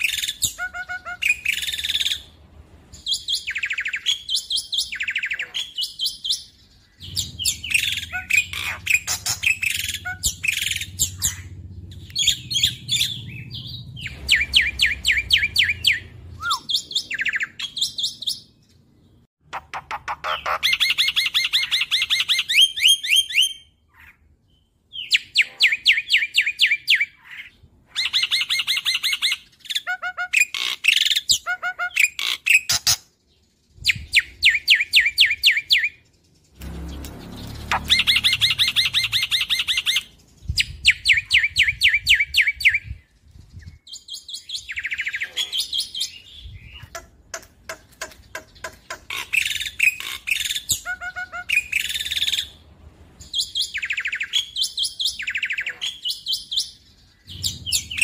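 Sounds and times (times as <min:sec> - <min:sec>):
bird singing sharp high notes: 0:34.8 - 0:40.2.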